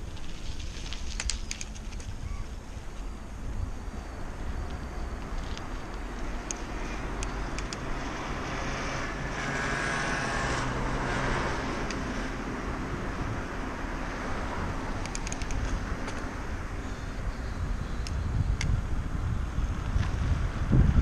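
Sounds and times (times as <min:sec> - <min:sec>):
steady low rumble: 0:00.0 - 0:21.0
car passing: 0:03.3 - 0:17.9
sharp clicks: 0:04.6 - 0:07.9, 0:15.0 - 0:16.3.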